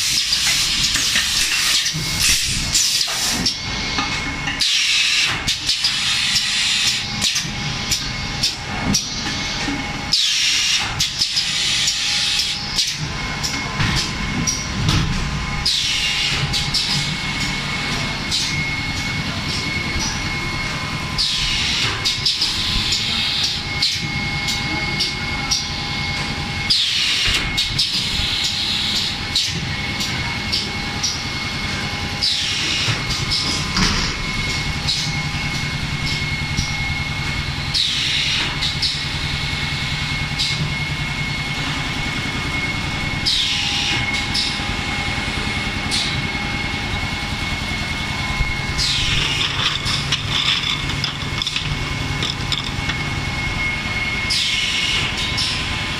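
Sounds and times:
pneumatic clacks: 0.0 - 20.2, 32.2 - 39.2, 47.4 - 55.8
machine humming: 0.0 - 55.9.

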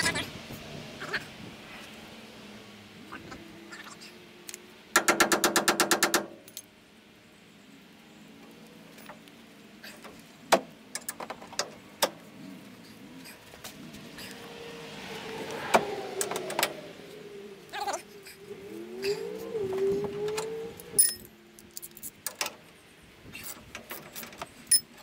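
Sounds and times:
steel tools clanking: 21.0 - 22.6, 23.4 - 25.0.

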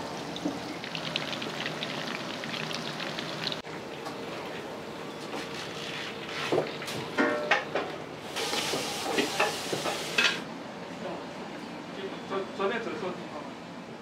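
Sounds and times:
food sizzling in a wok: 8.3 - 10.4.

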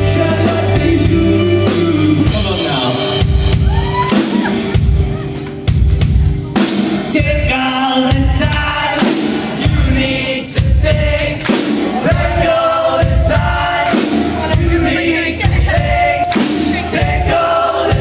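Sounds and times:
crowd singing together: 0.0 - 3.1, 7.1 - 18.0
drums: 0.0 - 18.0.

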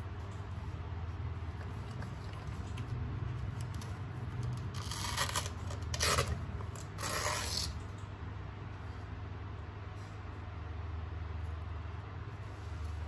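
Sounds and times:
packaging rustling and scraping: 4.5 - 7.8.

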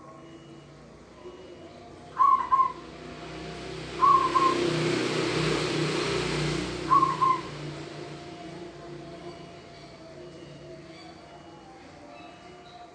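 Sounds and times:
dove cooing: 2.0 - 2.8, 4.0 - 4.7, 6.8 - 7.7
broad rushing noise: 2.2 - 9.6.

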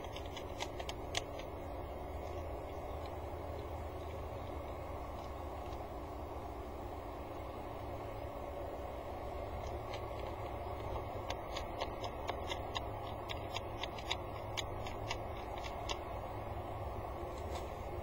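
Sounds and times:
beak pecking gravel clicks: 0.0 - 4.2, 9.6 - 16.1
steady background hum: 0.0 - 18.0.

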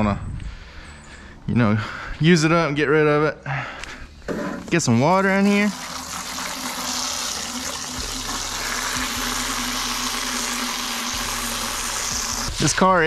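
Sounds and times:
hose water splashing into bucket: 4.6 - 12.9.

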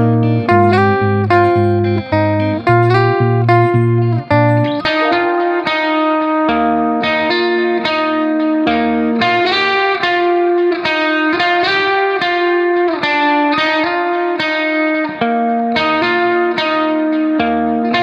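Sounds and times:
plucked string music: 0.0 - 18.0.

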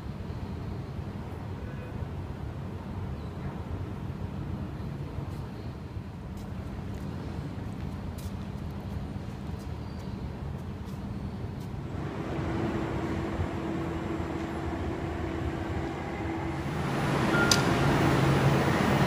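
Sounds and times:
train rumble and hum: 10.6 - 19.0
brief click: 17.4 - 17.7.

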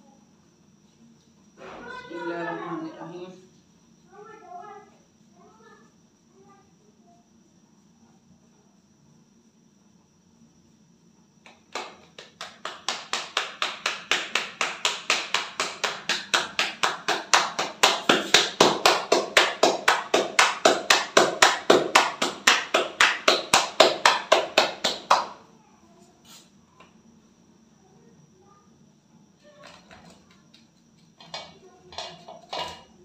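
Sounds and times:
hands slapping dough: 11.4 - 25.4.

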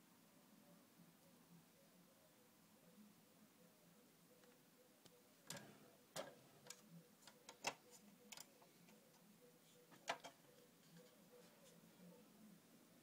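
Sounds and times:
faint steady hum: 0.0 - 13.0
faint clicks and taps: 4.4 - 9.3, 9.9 - 11.8.

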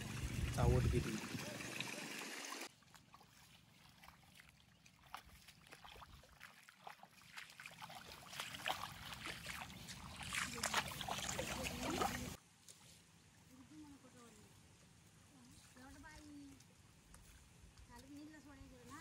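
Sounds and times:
feet wading through muddy water: 2.6 - 12.4.

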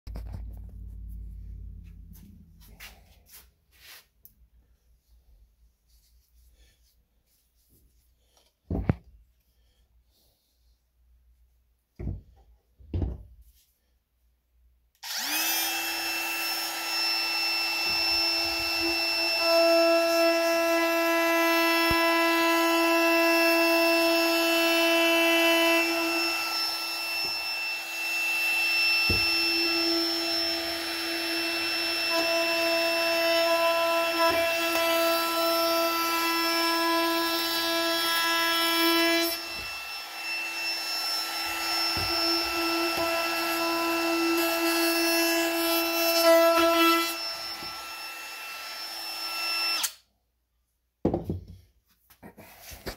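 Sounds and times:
router motor whine: 15.0 - 50.0.

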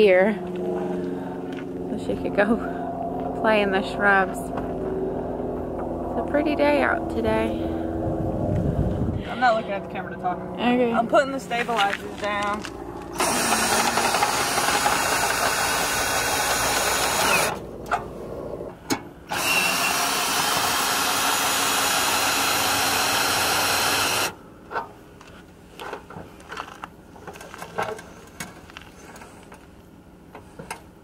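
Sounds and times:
cordless drill driving screw: 13.1 - 17.6, 19.3 - 24.3.

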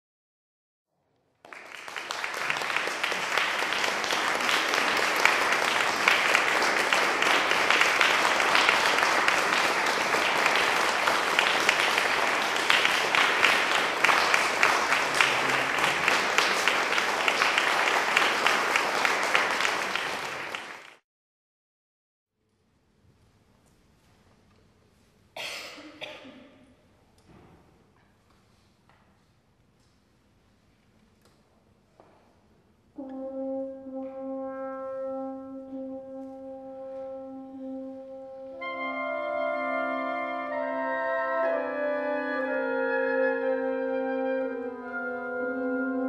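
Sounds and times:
audience applauding: 1.3 - 21.0.

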